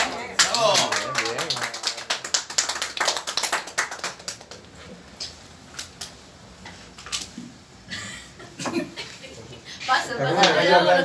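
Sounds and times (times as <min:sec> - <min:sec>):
group clapping: 0:00.0 - 0:04.8, 0:10.3 - 0:10.7.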